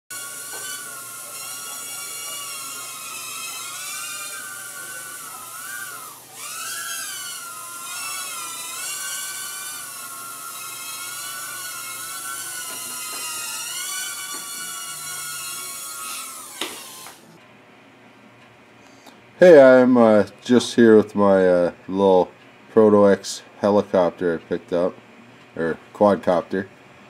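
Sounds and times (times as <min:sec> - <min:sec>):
quadcopter motors whining: 0:00.1 - 0:17.4.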